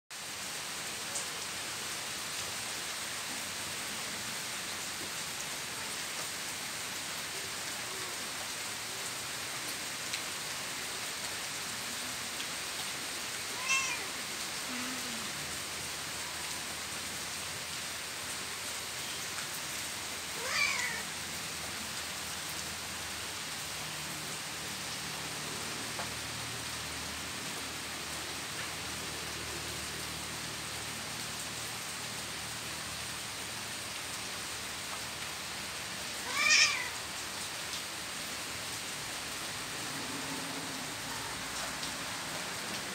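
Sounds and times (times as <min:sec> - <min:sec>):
rain hissing: 0:00.2 - 0:42.9
cats meowing: 0:13.6 - 0:14.1, 0:20.4 - 0:21.0, 0:36.2 - 0:37.0.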